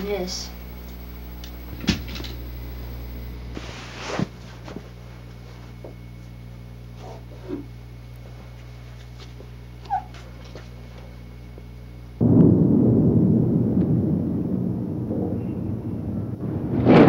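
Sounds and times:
short high whine: 0:00.0 - 0:04.4, 0:12.1 - 0:17.0
low steady hum: 0:00.0 - 0:17.0
deep rumbling: 0:12.2 - 0:17.0.

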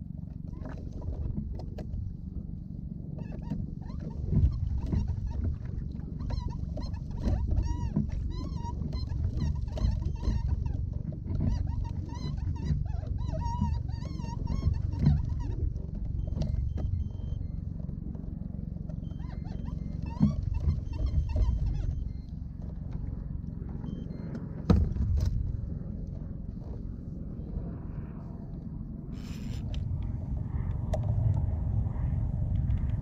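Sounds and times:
heavy low rumble: 0:21.5 - 0:33.0.

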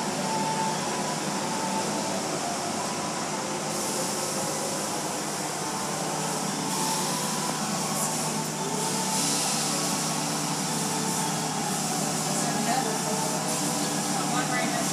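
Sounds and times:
car wash machinery running: 0:00.0 - 0:14.9
water spray on glass: 0:06.0 - 0:14.9.

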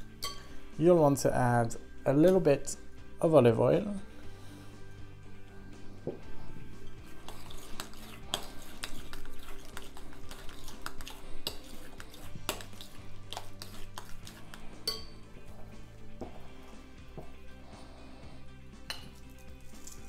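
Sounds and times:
soft background music: 0:00.0 - 0:20.0
spoon clinking glass: 0:00.2 - 0:00.5, 0:14.8 - 0:15.2, 0:18.9 - 0:20.0
spoon scraping glass bowl: 0:06.8 - 0:15.7, 0:18.9 - 0:20.0.

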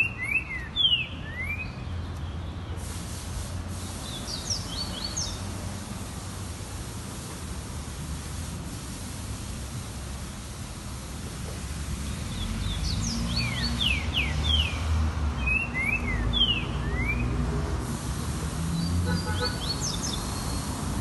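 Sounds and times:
bird singing whistled notes: 0:00.0 - 0:01.9, 0:12.3 - 0:14.8, 0:15.4 - 0:17.3.

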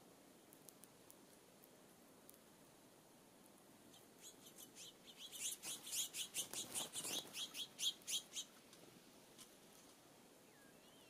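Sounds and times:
songbird chattering calls: 0:03.9 - 0:08.6.

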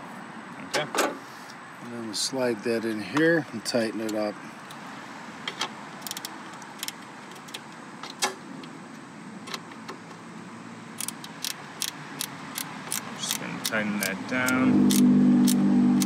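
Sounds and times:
ratcheting wrench clicking: 0:06.0 - 0:07.6, 0:11.0 - 0:16.0.

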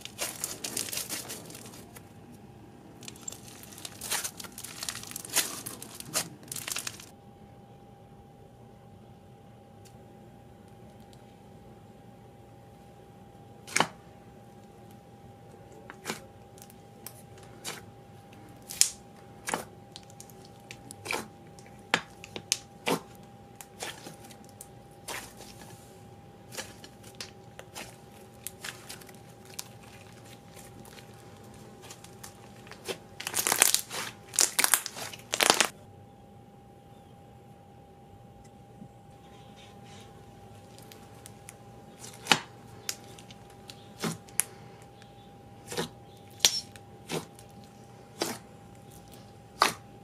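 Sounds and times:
slime crackling and popping: 0:00.0 - 0:02.0, 0:03.0 - 0:07.1, 0:18.6 - 0:25.6, 0:26.5 - 0:35.7, 0:48.2 - 0:49.8.

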